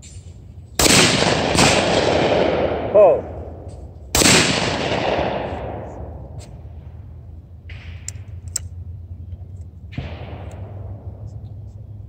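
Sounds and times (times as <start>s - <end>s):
steady low hum: 0.0s - 12.0s
shotgun shot echoing: 0.8s - 6.3s
sharp clicks: 7.7s - 8.8s.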